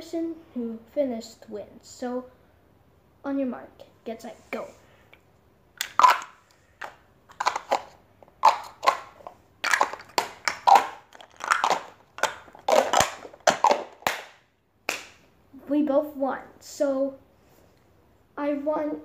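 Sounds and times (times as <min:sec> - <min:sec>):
nesting dolls clacking: 0:05.8 - 0:15.2.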